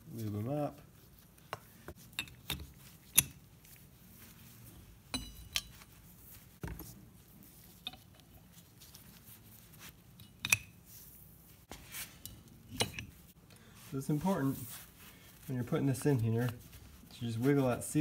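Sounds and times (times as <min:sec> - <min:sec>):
metal parts clicking and clinking: 0:05.2 - 0:05.8, 0:12.2 - 0:13.2.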